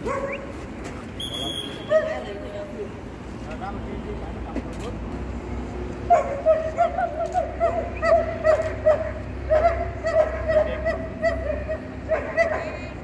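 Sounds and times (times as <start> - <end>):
dog yipping and whining: 6.1 - 12.6.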